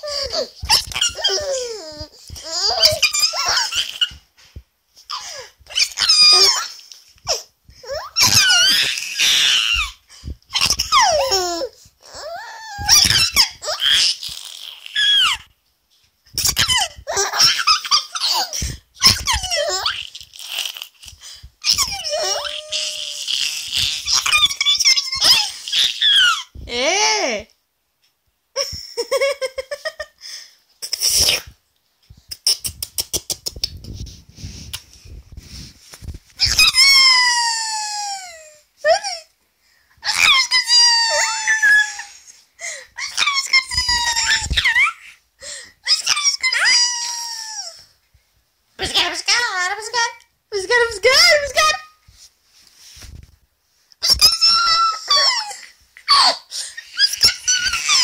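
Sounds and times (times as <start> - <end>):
baby laughing: 0.0 - 4.2, 5.1 - 15.4, 16.4 - 20.7, 21.6 - 26.5, 54.1 - 58.0.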